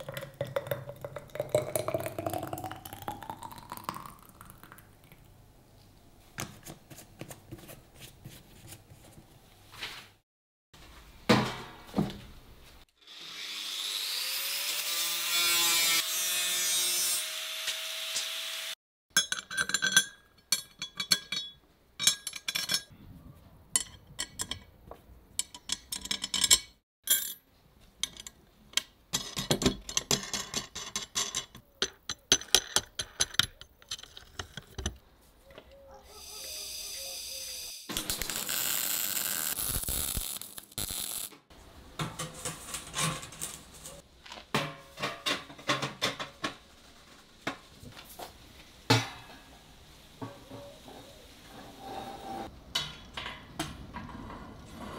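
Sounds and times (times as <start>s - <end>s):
steel bolts clinking and knocking: 19.2s - 22.9s, 23.7s - 27.4s, 28.0s - 35.0s.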